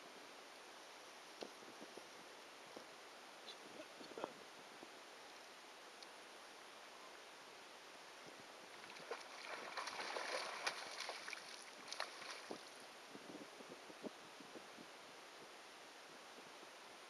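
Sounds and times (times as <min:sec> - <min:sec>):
fish splashing in water: 0:08.8 - 0:12.7.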